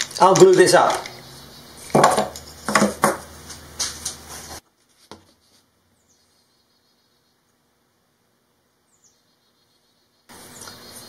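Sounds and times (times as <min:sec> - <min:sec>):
wooden blocks knocking on workbench: 0:01.9 - 0:03.3.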